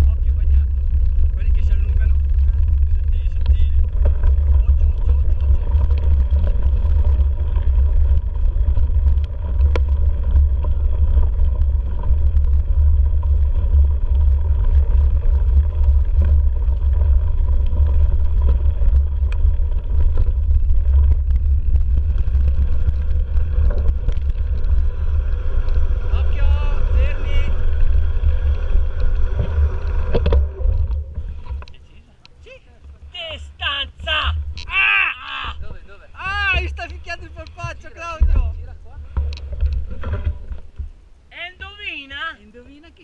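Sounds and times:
bike clicks and rattles: 0:00.0 - 0:26.4
wind buffeting microphone: 0:00.0 - 0:31.8.

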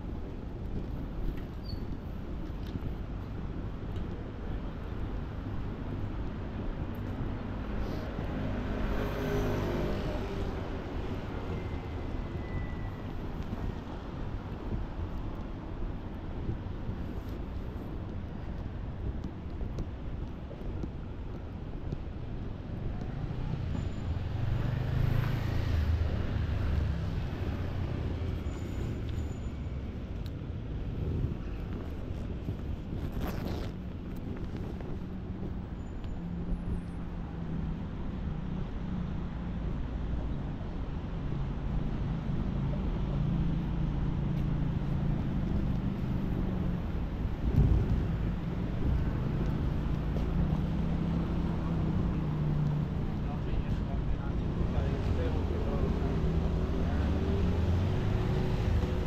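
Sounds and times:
city traffic hum: 0:00.0 - 0:59.0
vehicle passing with tyre noise: 0:05.6 - 0:14.6, 0:22.5 - 0:59.0.

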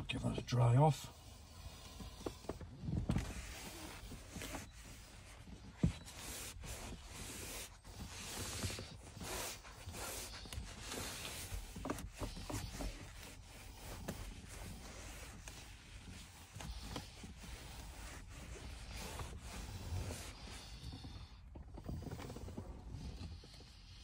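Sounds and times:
towel wiping plastic trim: 0:03.2 - 0:21.2.

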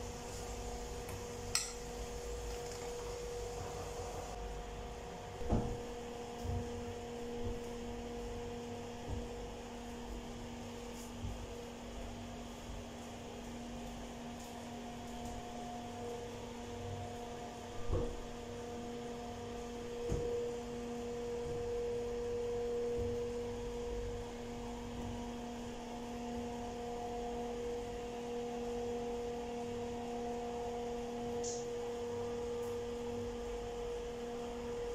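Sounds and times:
electrical hum: 0:00.0 - 0:34.9.

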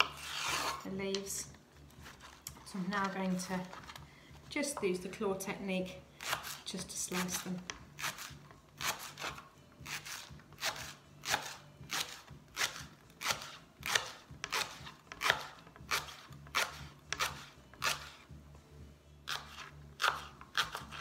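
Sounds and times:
knife cutting leek on board: 0:06.2 - 0:18.2, 0:19.3 - 0:21.0.

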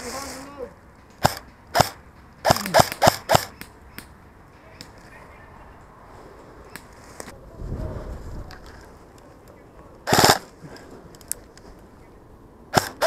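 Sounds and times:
airsoft gun shots: 0:01.2 - 0:03.7, 0:10.1 - 0:10.5, 0:12.7 - 0:13.0.

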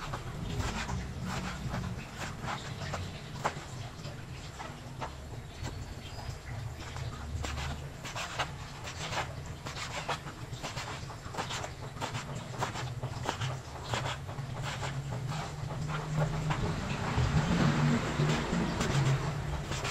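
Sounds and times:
knife slicing meat on a board: 0:00.0 - 0:03.7, 0:07.4 - 0:16.8, 0:17.6 - 0:19.9.

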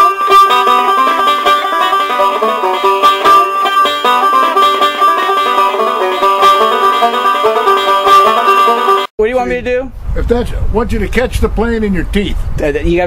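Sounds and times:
bluegrass banjo music: 0:00.0 - 0:09.1.

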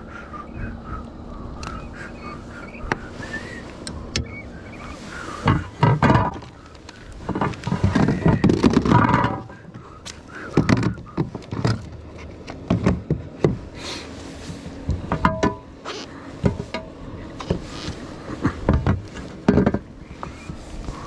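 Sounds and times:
knocks and scraping on plastic kayak: 0:05.4 - 0:09.6, 0:10.4 - 0:13.8, 0:17.4 - 0:21.0.

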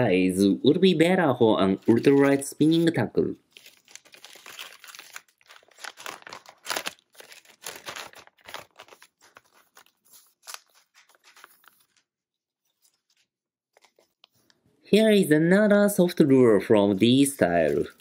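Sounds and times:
plastic bag rustling: 0:03.5 - 0:12.1.

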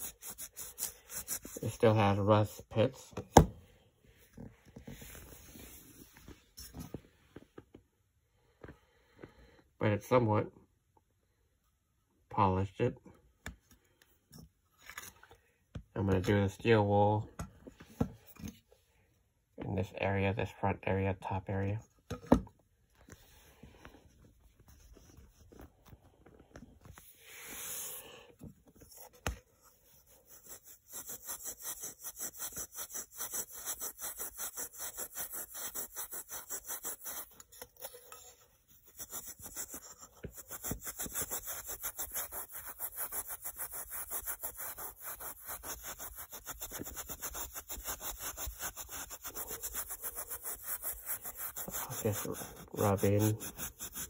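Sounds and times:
steel wool scrubbing metal: 0:30.8 - 0:54.0.

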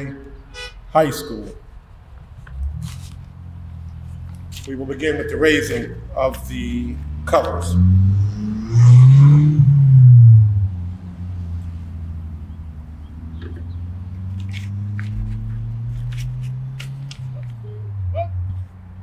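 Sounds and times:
engine revving and running: 0:05.6 - 0:12.2, 0:13.0 - 0:17.6.

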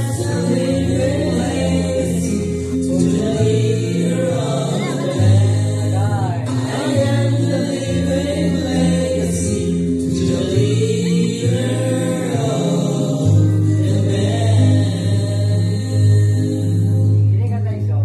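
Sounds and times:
group of voices singing: 0:00.0 - 0:17.3
sustained bass notes: 0:00.0 - 0:18.0.

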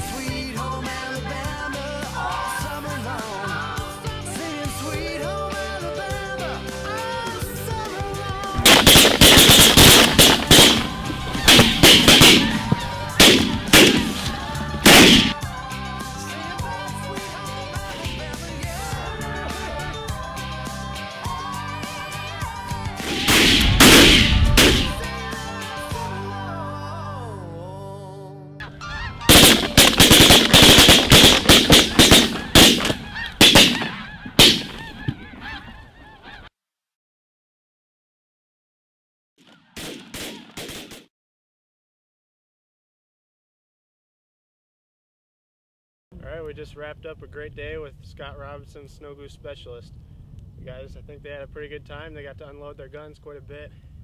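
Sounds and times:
background music: 0:00.0 - 0:34.9
shotguns firing: 0:08.6 - 0:15.4, 0:23.0 - 0:25.1, 0:29.3 - 0:35.2, 0:39.8 - 0:41.0
geese honking: 0:08.7 - 0:18.0, 0:28.6 - 0:36.5.

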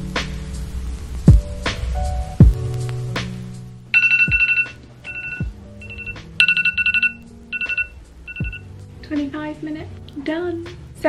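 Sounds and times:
soft lo-fi music: 0:00.0 - 0:11.0
timer alarm beeping: 0:04.0 - 0:08.7.

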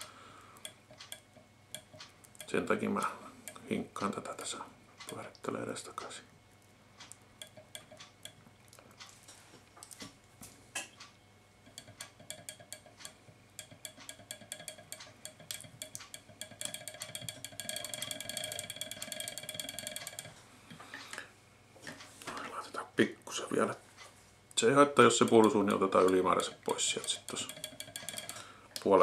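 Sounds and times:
rapid rattling tick: 0:00.0 - 0:04.1, 0:07.0 - 0:08.4, 0:11.6 - 0:20.4, 0:25.0 - 0:28.9
light clicks and taps: 0:00.0 - 0:04.2, 0:07.0 - 0:22.5, 0:24.0 - 0:29.0.

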